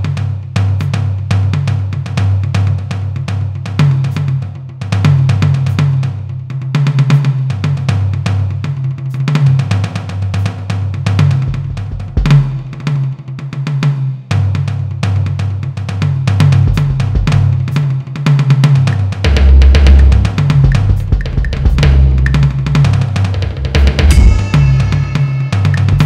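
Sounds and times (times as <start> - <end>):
fast drum-kit beat: 0.0 - 26.0
low bass line: 19.3 - 22.9, 23.6 - 26.0.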